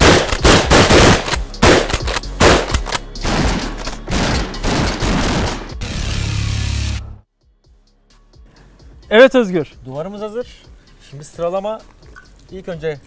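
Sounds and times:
loud shotgun blasts: 0:00.0 - 0:05.7.

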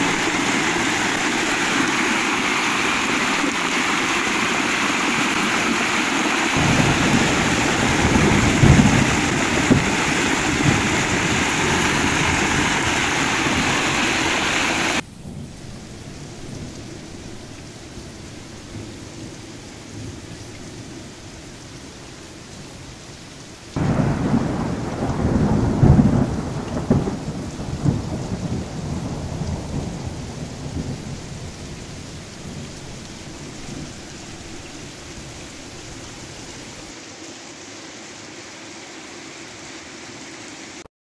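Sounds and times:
thunder clap and rumble: 0:00.0 - 0:19.3, 0:23.8 - 0:36.0
heavy rain falling: 0:00.0 - 0:40.9.

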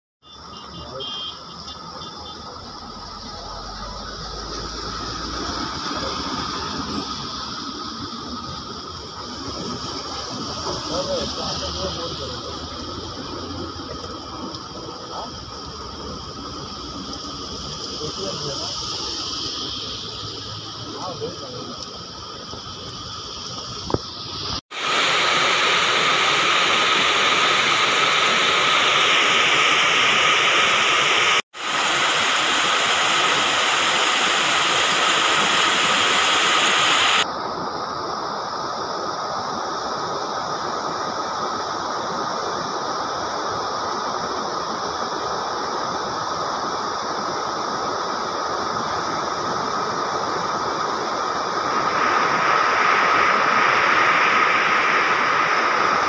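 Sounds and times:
heavy rain falling: 0:00.4 - 0:24.1.

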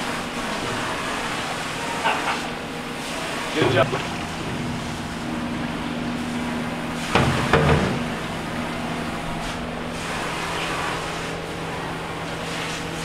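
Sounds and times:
steady low hum: 0:00.0 - 0:13.0
metal pans clanking on a sink: 0:07.2 - 0:08.1.

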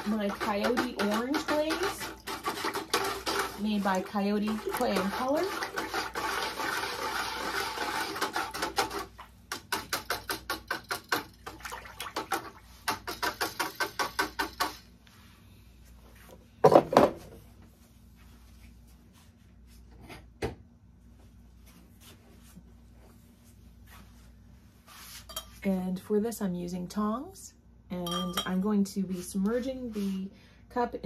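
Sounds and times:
whisk stirring liquid: 0:00.0 - 0:14.8.

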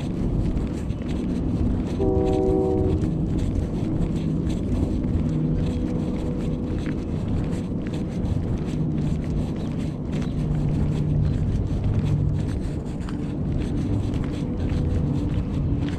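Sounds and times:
passing traffic rumble: 0:00.0 - 0:15.9
wind on microphone: 0:00.0 - 0:15.9
horn chord: 0:02.0 - 0:03.0.

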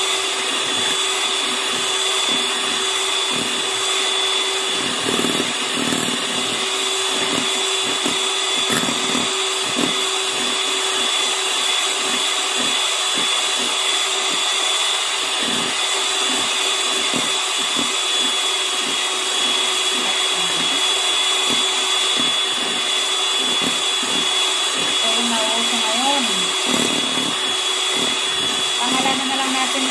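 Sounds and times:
electric hand mixer whining: 0:00.0 - 0:29.9.

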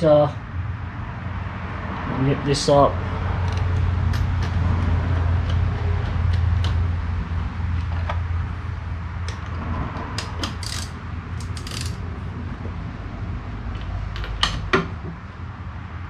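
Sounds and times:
spanner clicking on metal fitting: 0:10.2 - 0:12.0.

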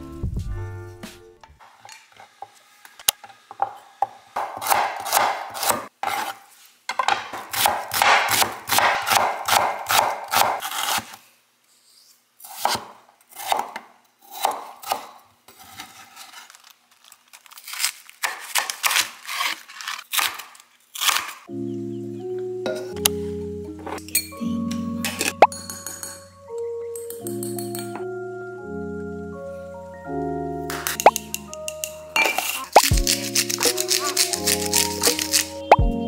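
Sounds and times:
knife chopping on cutting board: 0:03.6 - 0:06.4, 0:07.1 - 0:10.7.

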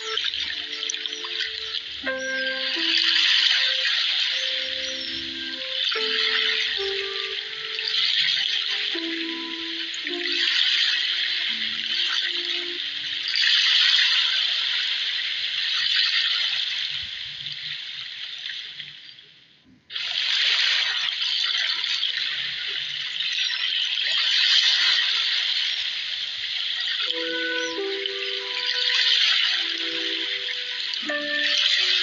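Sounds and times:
sea water rushing and splashing: 0:00.0 - 0:17.0, 0:26.7 - 0:32.0.

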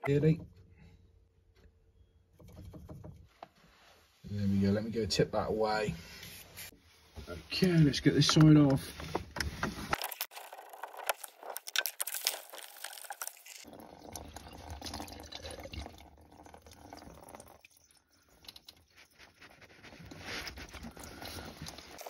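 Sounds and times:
water dripping into plastic tray: 0:13.8 - 0:18.8.

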